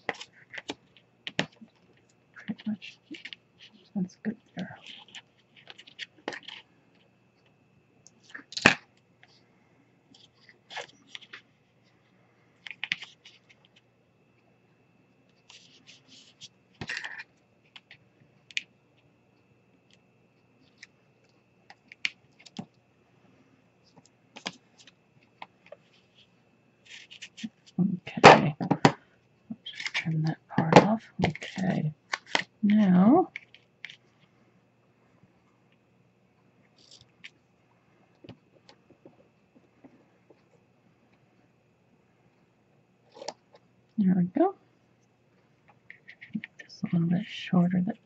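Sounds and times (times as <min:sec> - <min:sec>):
faint steady hum: 0:00.0 - 0:48.0
clicks taps and paper rustles: 0:23.9 - 0:26.0.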